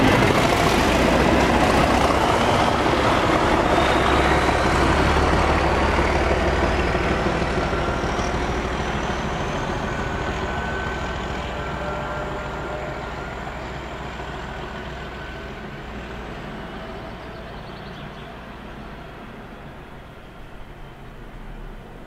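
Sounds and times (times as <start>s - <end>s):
diesel locomotive engines rumbling: 0.0s - 22.0s.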